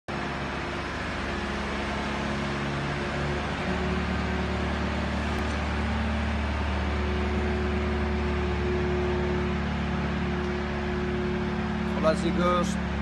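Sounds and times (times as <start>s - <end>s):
machine hum with low drone: 0.1s - 13.0s.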